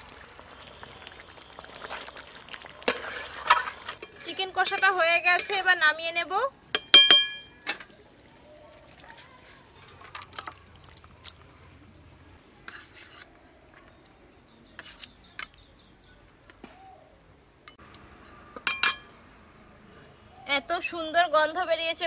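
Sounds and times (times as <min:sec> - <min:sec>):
metal spatula clanging on pan: 0:06.7 - 0:07.8, 0:18.6 - 0:19.1
faint scrapes and taps: 0:12.6 - 0:14.1, 0:14.7 - 0:15.6.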